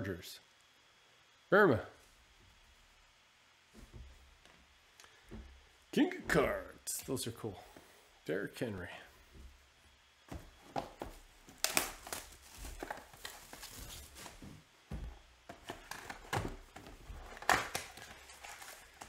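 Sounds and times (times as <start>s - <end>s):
cardboard box crinkling and rustling: 10.9s - 14.6s.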